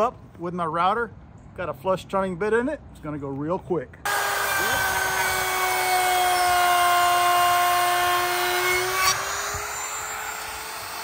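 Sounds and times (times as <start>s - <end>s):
router high whine: 4.1s - 11.0s.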